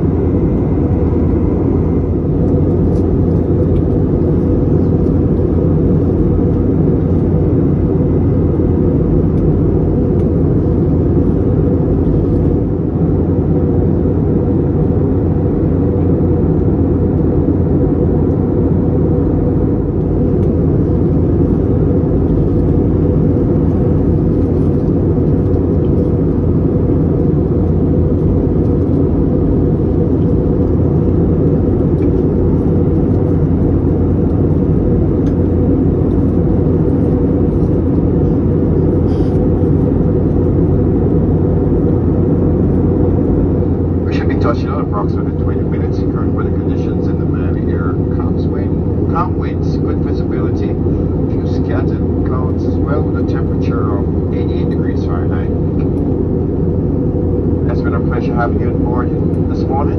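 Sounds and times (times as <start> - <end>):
aircraft cabin engine rumble: 0.0 - 59.9.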